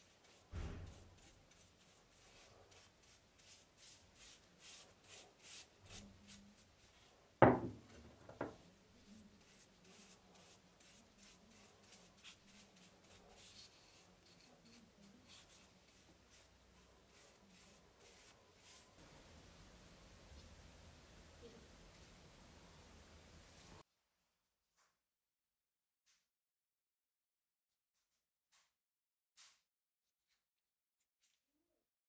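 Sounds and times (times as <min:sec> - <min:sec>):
brush strokes swishing: 0:00.0 - 0:07.2, 0:08.5 - 0:19.0
sharp knocks: 0:07.4 - 0:08.5.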